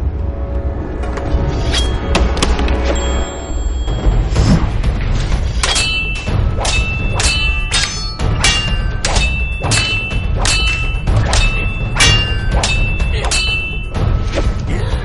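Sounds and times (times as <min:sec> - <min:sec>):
sword blades clashing: 0:05.5 - 0:14.0.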